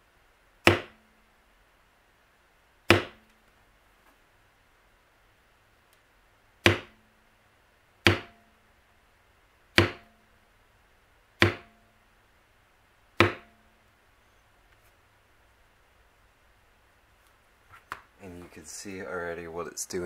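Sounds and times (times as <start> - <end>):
mallet tapping leather tool: 0.6 - 1.0, 2.9 - 3.2, 6.6 - 7.0, 8.0 - 8.4, 9.8 - 10.1, 11.4 - 11.8, 13.2 - 13.6.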